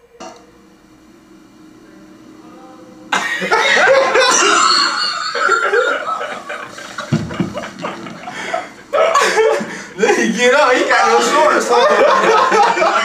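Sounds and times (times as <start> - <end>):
men laughing: 3.1 - 13.0.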